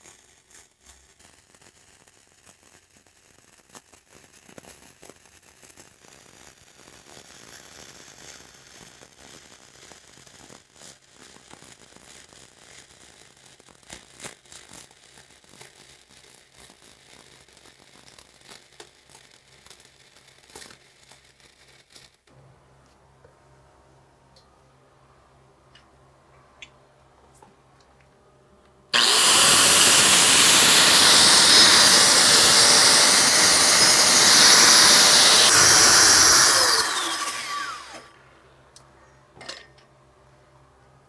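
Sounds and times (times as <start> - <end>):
welding arc crackling: 0.0 - 22.3, 28.9 - 38.2.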